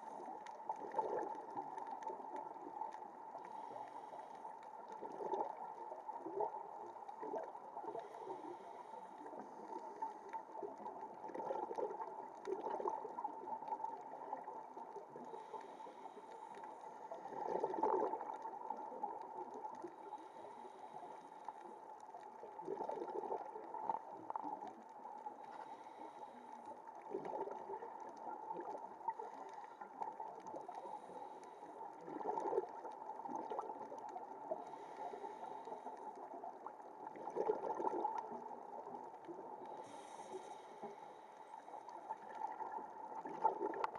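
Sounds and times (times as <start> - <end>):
bubbly gurgling exhalation: 0.7 - 2.3, 4.9 - 8.3, 9.4 - 15.4, 17.2 - 19.6, 22.5 - 24.5, 27.0 - 29.5, 32.0 - 34.8, 36.6 - 39.1, 42.1 - 43.9
scuba regulator breathing: 8.0 - 10.2, 15.2 - 17.8, 20.1 - 21.6, 25.4 - 26.8, 34.5 - 36.2, 39.7 - 42.0.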